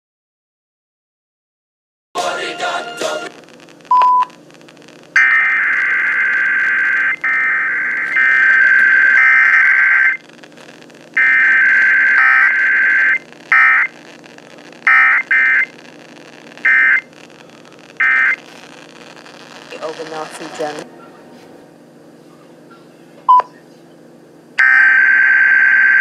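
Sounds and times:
shrill data tone bursts: 3.8s - 20.9s.

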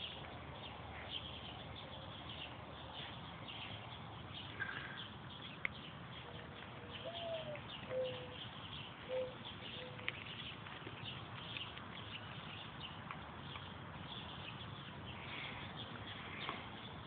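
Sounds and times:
small birds chirping: 0.0s - 17.0s
mourning dove cooing: 6.8s - 8.4s, 9.1s - 10.1s.

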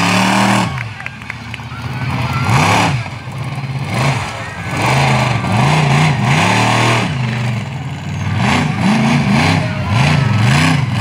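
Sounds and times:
truck engine revving hard: 0.0s - 11.0s.

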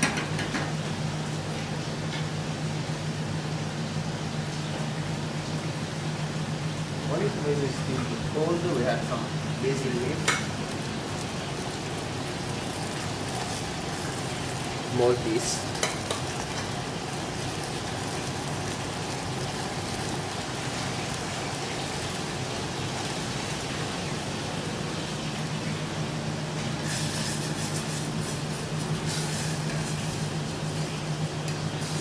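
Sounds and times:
kitchen hiss and hum: 0.0s - 32.0s
spatula scraping a saucepan: 26.8s - 30.2s.

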